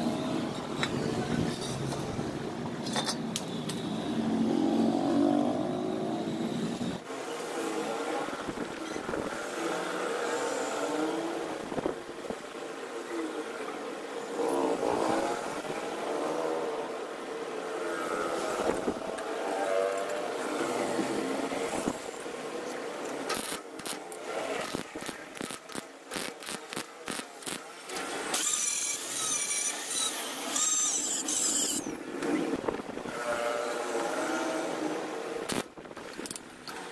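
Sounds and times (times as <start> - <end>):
angle grinder grinding steel: 24.6 - 32.0.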